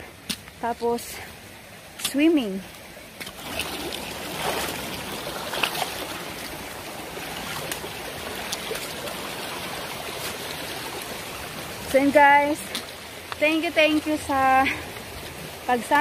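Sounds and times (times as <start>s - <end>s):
stream running over rocks: 0.0s - 16.0s.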